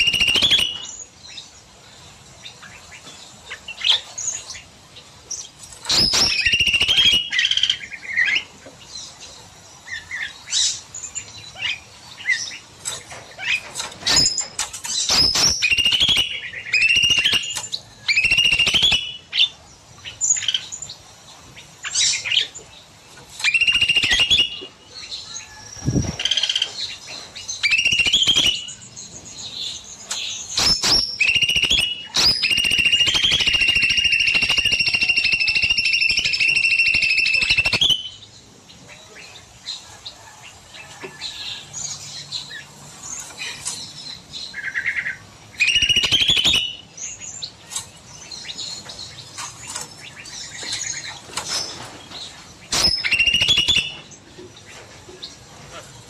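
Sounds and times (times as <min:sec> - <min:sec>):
songbird whistling: 0:00.0 - 0:01.1, 0:05.9 - 0:08.4, 0:14.1 - 0:19.5, 0:23.4 - 0:24.7, 0:27.6 - 0:28.8, 0:30.6 - 0:38.3, 0:44.5 - 0:46.9, 0:52.7 - 0:54.0
high bird trill: 0:00.0 - 0:01.5, 0:05.4 - 0:08.5, 0:13.4 - 0:20.9, 0:23.4 - 0:27.0, 0:27.6 - 0:28.9, 0:29.6 - 0:38.3, 0:44.5 - 0:47.6, 0:52.6 - 0:54.1.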